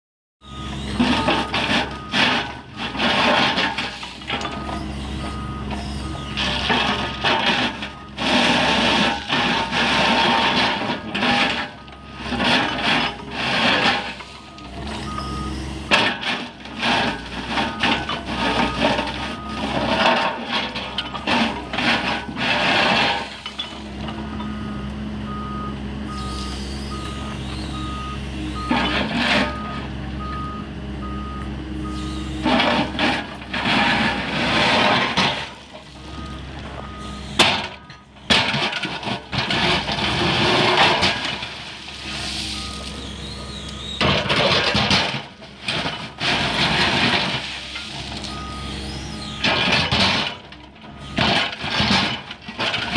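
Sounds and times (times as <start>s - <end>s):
repeating warning beep: 0.4s - 2.2s, 14.4s - 15.6s, 24.4s - 32.4s, 36.0s - 38.1s
diesel engine under load: 0.4s - 52.9s
grinding stone ballast: 38.4s - 50.4s.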